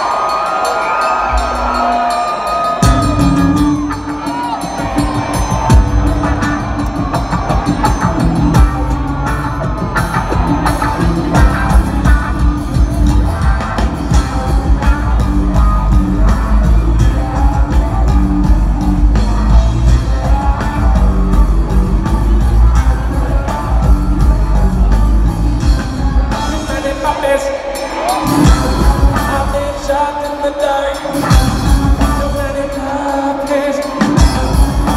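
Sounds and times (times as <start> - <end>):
live rock band playing: 0.0 - 34.9
person singing: 25.7 - 34.9.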